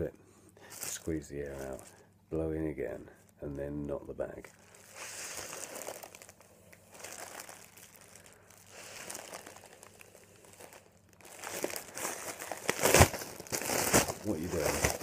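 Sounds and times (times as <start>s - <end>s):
plastic bag crinkling: 0.6s - 2.0s, 4.4s - 15.0s
breath hissing: 4.7s - 6.0s, 8.2s - 9.4s.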